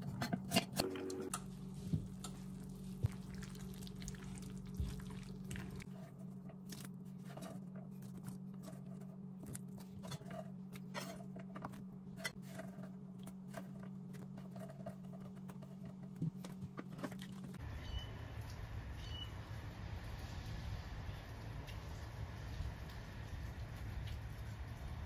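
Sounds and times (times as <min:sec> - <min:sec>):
steady low hum: 0:00.0 - 0:17.6.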